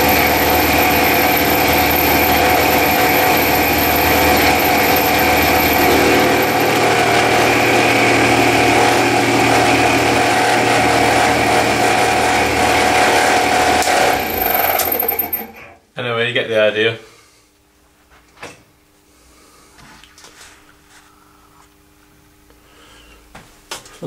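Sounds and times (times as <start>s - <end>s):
motor and spindle whine: 0.0s - 15.6s.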